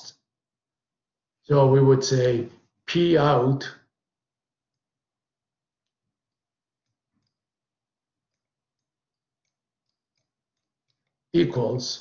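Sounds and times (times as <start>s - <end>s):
faint clicks: 5.7s - 11.2s.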